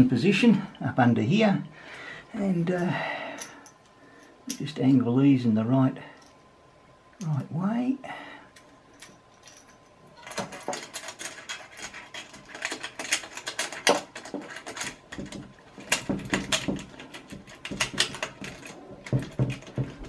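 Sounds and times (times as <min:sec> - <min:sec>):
small metal parts clicking and scraping: 0:08.5 - 0:20.0.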